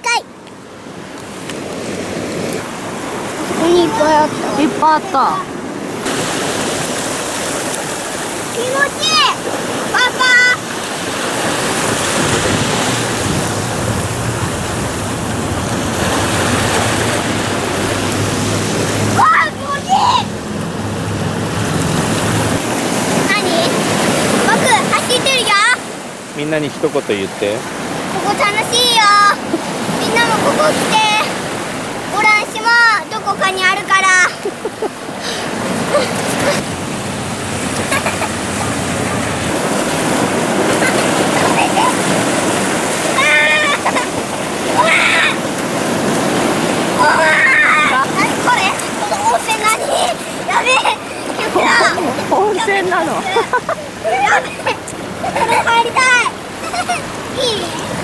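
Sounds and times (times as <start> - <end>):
small waves breaking on shore: 0.0 - 58.0
surf washing over rocks: 0.0 - 58.0
wind rumbling on microphone: 10.6 - 24.8.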